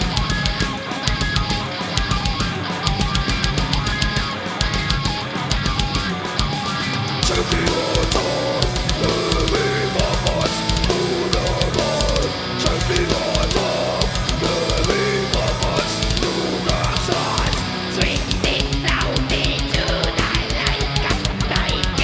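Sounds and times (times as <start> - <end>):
distorted electric guitars: 0.0 - 22.0
metal band playing live: 0.0 - 22.0
rapid kick drum strokes: 7.2 - 22.0.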